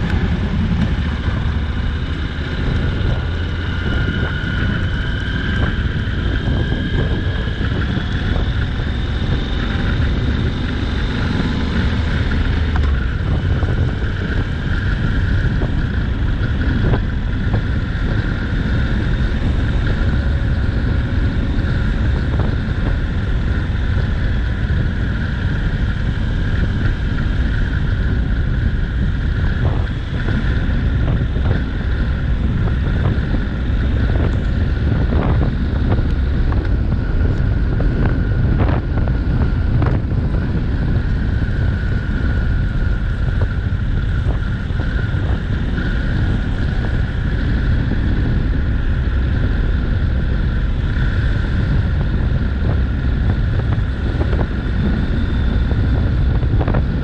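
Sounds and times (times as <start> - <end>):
motorcycle engine: 0.0 - 57.0
wind rush over microphone: 0.0 - 57.0.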